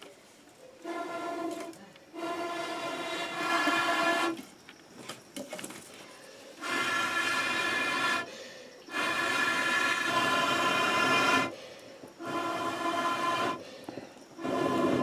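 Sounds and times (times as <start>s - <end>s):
breathy blows through blowpipe: 0.8s - 4.4s, 6.6s - 15.0s.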